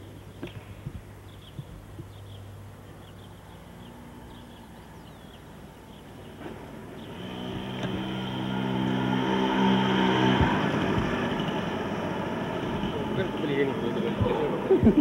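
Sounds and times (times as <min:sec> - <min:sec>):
engine: 0:04.0 - 0:15.0.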